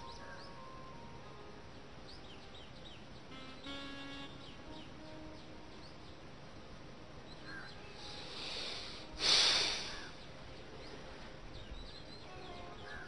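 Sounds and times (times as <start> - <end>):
man breathing in softly: 8.0 - 10.1
man exhaling forcefully: 8.4 - 10.0.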